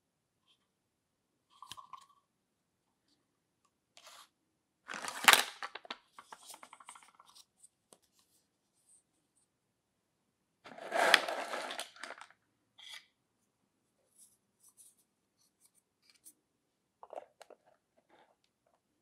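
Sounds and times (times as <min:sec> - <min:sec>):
plastic toy cookware clattering: 0:10.7 - 0:12.3.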